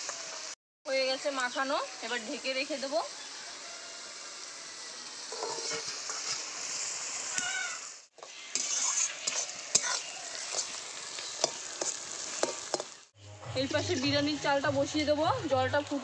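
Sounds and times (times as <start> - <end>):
onions sizzling in oil: 0.0 - 16.0
spatula scraping pan: 5.3 - 6.6, 8.2 - 13.0.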